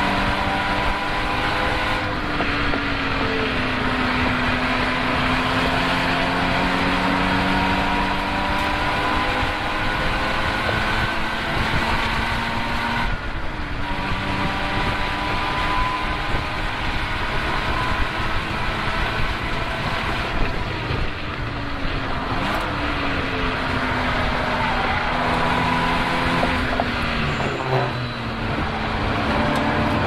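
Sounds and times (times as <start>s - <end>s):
racing car engine revving: 0.0s - 30.0s
steady rush of noise: 16.5s - 30.0s.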